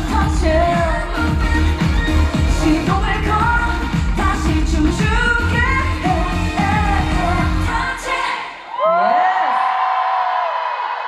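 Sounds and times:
heavy bass beat: 0.0s - 7.8s
woman singing pop song: 0.0s - 9.4s.

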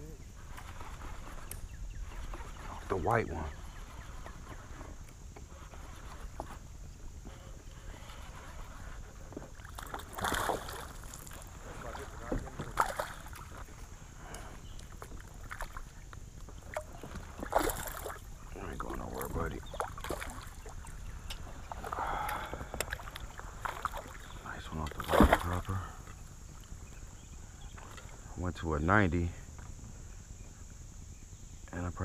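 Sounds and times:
fish splashing at the surface: 9.6s - 13.6s, 16.7s - 18.2s, 25.0s - 25.7s.

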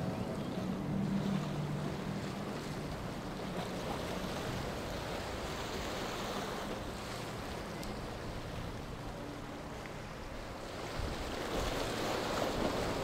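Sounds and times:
low engine hum: 0.0s - 13.0s
water rushing past boat: 0.0s - 13.0s
wind on microphone: 10.2s - 13.0s.

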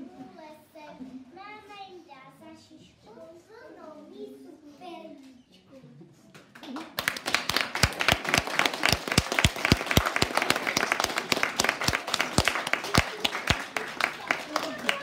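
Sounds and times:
loud close hand claps: 6.4s - 15.0s
audience applauding: 6.5s - 15.0s.

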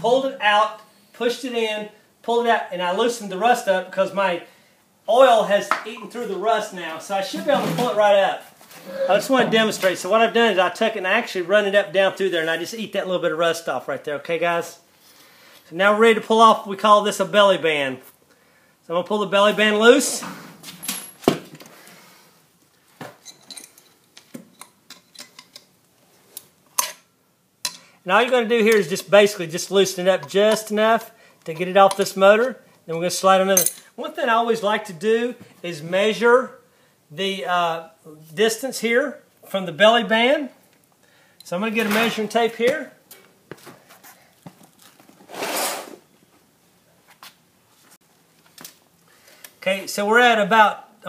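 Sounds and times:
sharp metal clank: 33.6s - 33.9s.

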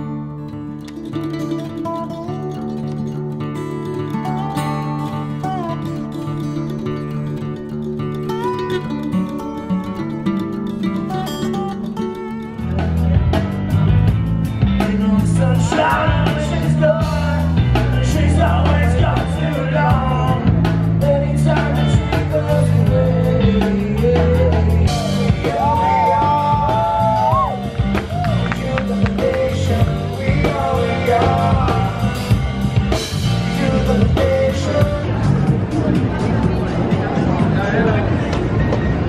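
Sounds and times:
electric guitars: 0.0s - 39.0s
drum kit: 12.5s - 39.0s
person singing: 14.7s - 36.2s.

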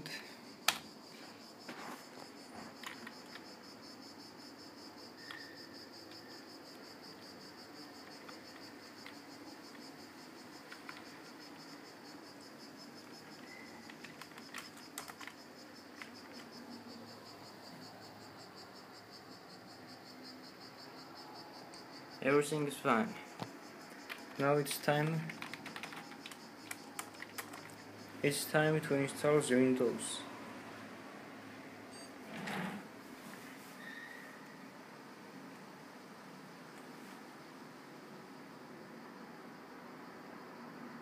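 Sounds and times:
computer fan hum: 0.0s - 41.0s
faint high-pitched whine: 0.0s - 41.0s
keyboard keys clicking: 2.8s - 3.5s, 10.7s - 11.1s, 13.3s - 15.4s, 24.1s - 27.8s.

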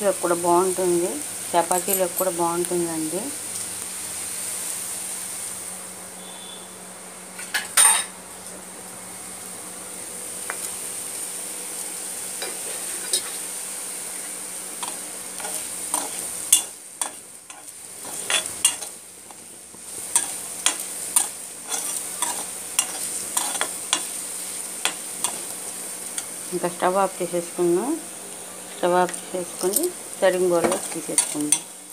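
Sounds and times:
food sizzling in oil: 0.0s - 8.2s, 8.8s - 31.9s
metal spoon scraping a pan: 14.8s - 19.4s, 20.0s - 24.2s, 24.8s - 25.5s, 30.6s - 31.7s.

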